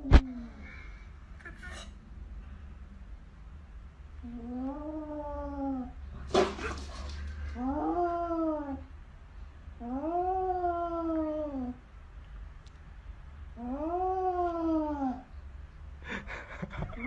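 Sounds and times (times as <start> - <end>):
cat hissing: 6.2 - 7.3.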